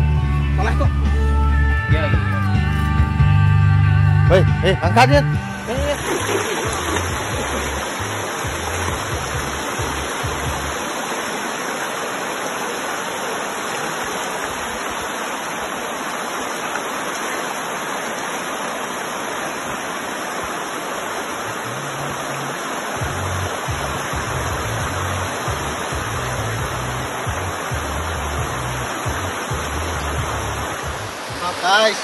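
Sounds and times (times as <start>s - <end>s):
background music bass line: 0.0s - 10.8s, 23.0s - 31.5s
river rushing over stones: 5.6s - 32.0s.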